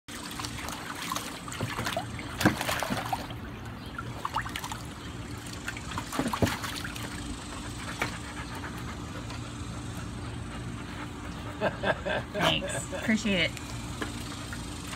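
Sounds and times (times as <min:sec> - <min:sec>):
dog splashing in water: 0:00.1 - 0:07.3.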